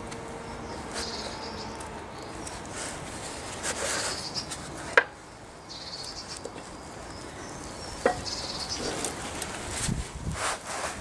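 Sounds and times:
handling rustle: 6.0s - 11.0s.

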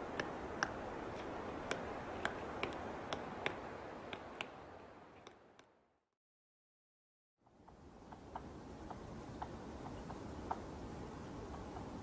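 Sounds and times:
steady background hiss: 0.0s - 5.8s, 7.4s - 12.0s
woodpecker clicking: 0.1s - 4.6s.

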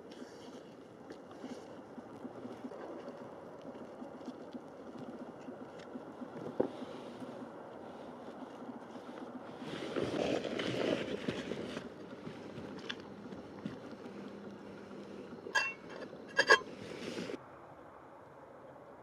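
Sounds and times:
camp stove burner hissing: 11.7s - 17.4s
metal lid clinking on pot: 15.5s - 16.7s.

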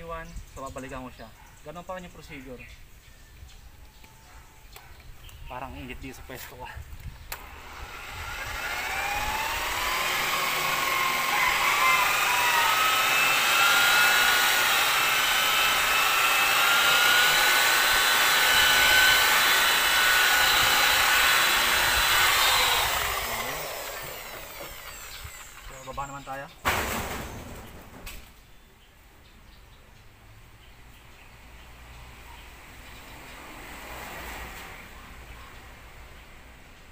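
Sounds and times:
electric polisher motor whine: 7.3s - 25.7s.

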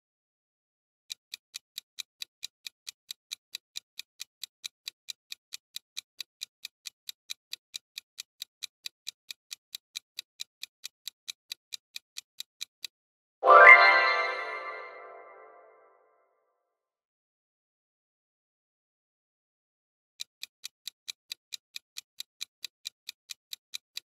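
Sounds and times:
clock ticking: 1.1s - 12.9s, 20.2s - 24.0s.

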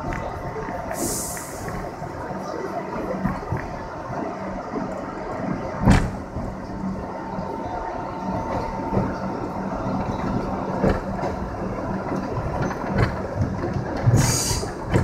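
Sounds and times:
subway train rumbling in tunnel: 0.0s - 15.0s
wheels clicking over rail joints: 0.0s - 15.0s
short sharp hiss: 14.2s - 14.7s.

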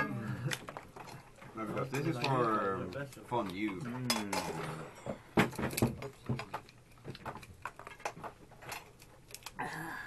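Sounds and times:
cutlery and plates clattering: 3.6s - 6.7s
lobster shells cracking: 5.4s - 9.6s.

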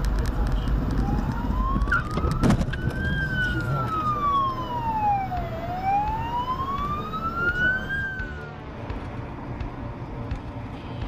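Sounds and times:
road and engine rumble: 0.0s - 11.0s
ambulance siren wailing: 1.0s - 8.6s.

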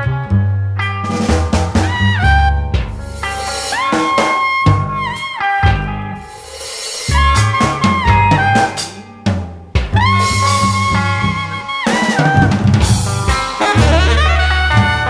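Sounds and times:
bass notes: 0.0s - 6.3s, 7.1s - 15.0s
jazz drum kit: 1.0s - 15.0s
lead notes bending downward: 13.6s - 14.6s.

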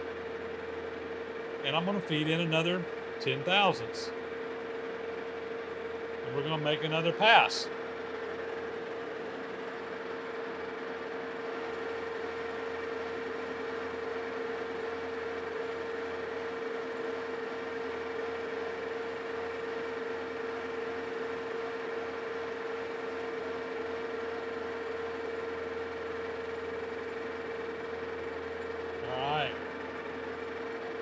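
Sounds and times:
metal lathe humming and whining: 0.0s - 31.0s.

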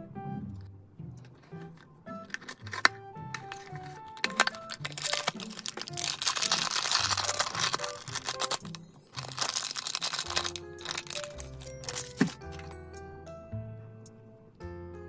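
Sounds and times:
soft background music: 0.0s - 15.0s
foil bag crinkling and tearing: 2.2s - 12.7s.

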